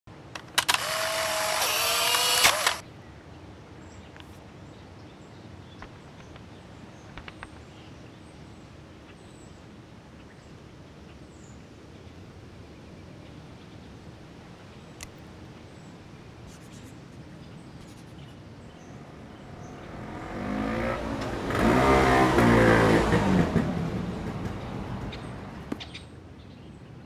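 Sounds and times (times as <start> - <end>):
camera motor whirring: 0.4 - 2.8
camera shutter click: 0.4 - 2.8.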